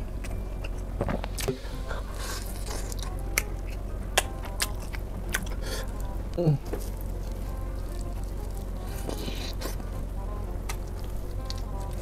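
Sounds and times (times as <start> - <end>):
steady low hum: 0.0 - 12.0
chewing with full mouth: 0.2 - 12.0
wet sauce squishes: 6.7 - 10.0.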